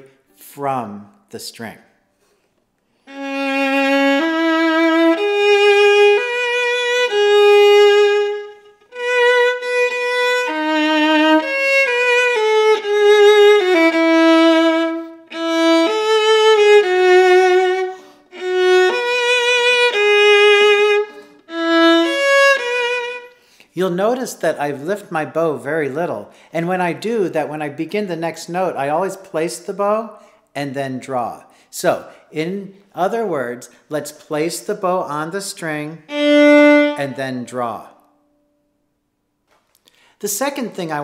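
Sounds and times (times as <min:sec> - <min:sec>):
solo viola melody: 0:03.0 - 0:23.4, 0:35.9 - 0:38.6.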